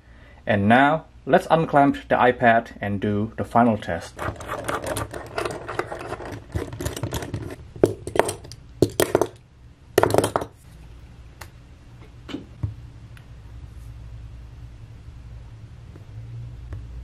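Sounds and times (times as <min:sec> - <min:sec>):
metal clamps clicking and rubbing: 0:04.2 - 0:09.3.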